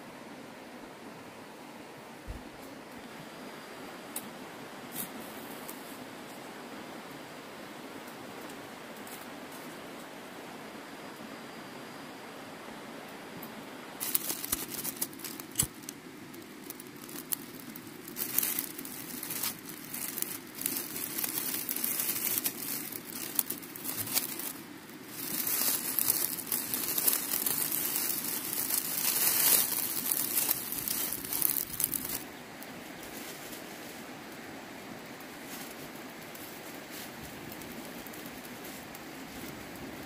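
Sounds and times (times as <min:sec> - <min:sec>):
dry vegetation crackling: 0:14.0 - 0:34.4, 0:35.0 - 0:40.0.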